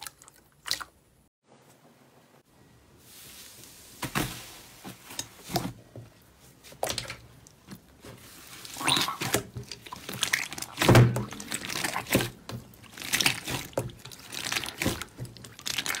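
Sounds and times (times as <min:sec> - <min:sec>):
slime squishing crackles: 0:08.5 - 0:16.0.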